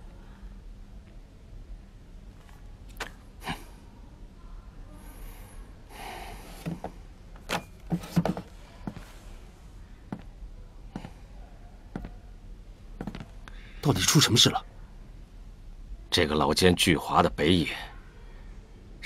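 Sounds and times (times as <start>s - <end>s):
wooden chair knocks: 7.9s - 8.5s
hard-soled footsteps on hard floor: 12.0s - 12.2s, 13.0s - 13.3s.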